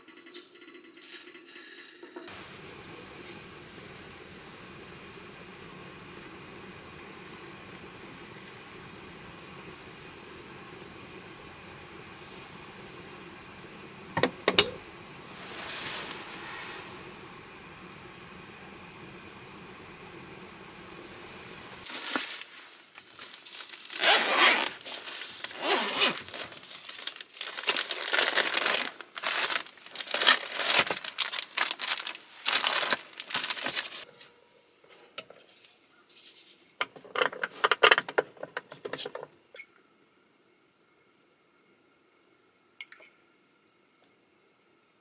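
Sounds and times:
steady hum: 0:02.3 - 0:34.0
crinkling and rustling: 0:21.8 - 0:34.3.

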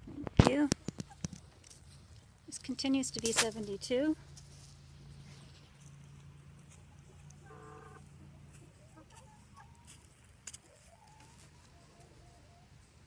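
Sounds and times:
chickens clucking: 0:05.0 - 0:13.0.

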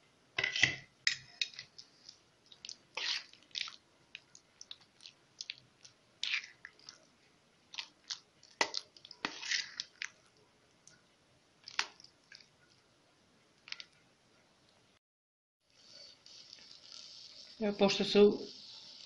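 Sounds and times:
spoon stirring thick puree: 0:01.1 - 0:07.1, 0:07.7 - 0:11.0.

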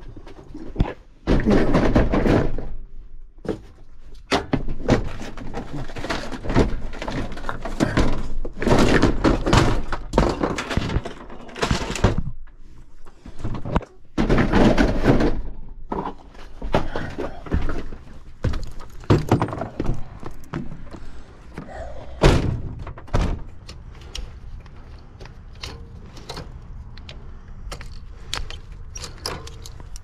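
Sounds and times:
thunks knocks and clattering: 0:00.1 - 0:23.8.

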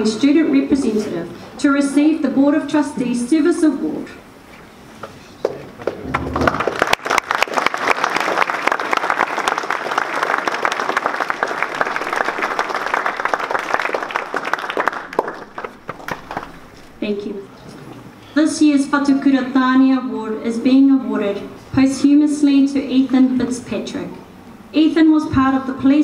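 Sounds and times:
audience clapping: 0:05.4 - 0:17.0.

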